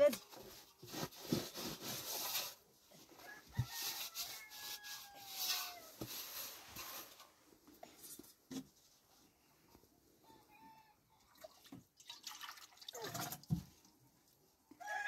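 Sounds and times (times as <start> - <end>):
distant rooster crowing: 3.2 - 5.9.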